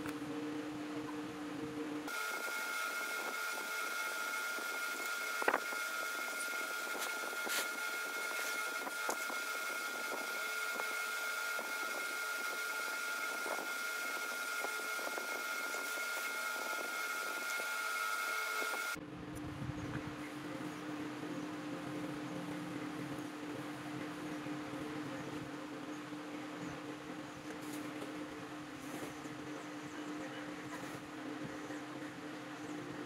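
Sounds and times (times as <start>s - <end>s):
small motor whining: 2.1s - 19.0s.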